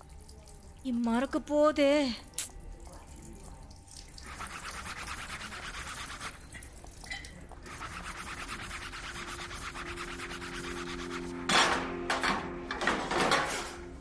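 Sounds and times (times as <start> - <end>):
lemon scrubbing cutting board: 4.2 - 6.5, 7.6 - 11.4.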